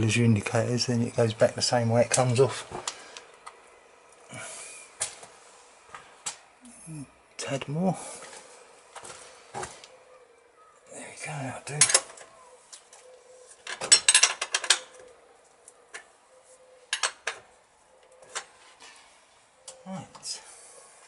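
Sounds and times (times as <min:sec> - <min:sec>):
metal clinking and rattling: 0:13.6 - 0:14.9.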